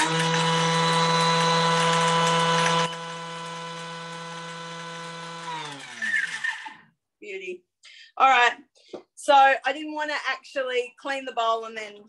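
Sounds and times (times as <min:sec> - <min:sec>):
food processor motor chopping: 0:00.0 - 0:06.9.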